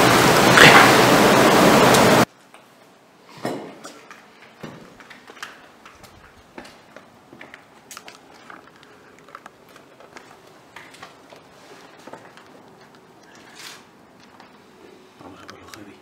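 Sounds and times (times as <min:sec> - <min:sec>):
footsteps crunching on debris: 0:04.3 - 0:13.6.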